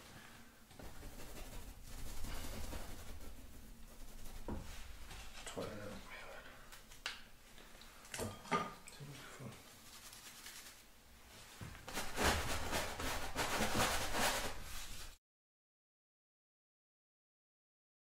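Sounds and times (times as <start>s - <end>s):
paintbrush scrubbing paint: 0.8s - 6.1s, 9.5s - 11.0s, 11.9s - 15.2s.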